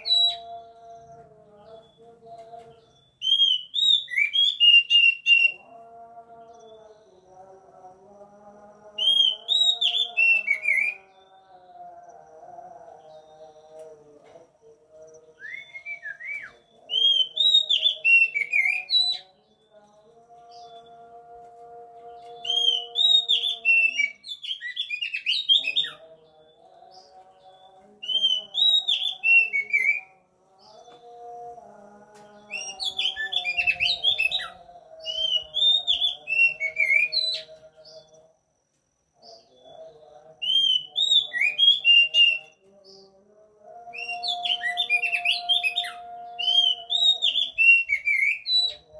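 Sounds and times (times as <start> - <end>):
bird singing whistles and chirps: 0.0 - 5.6, 9.0 - 11.5, 15.2 - 19.8, 22.2 - 31.1, 32.4 - 38.1, 40.4 - 43.1, 44.0 - 48.9.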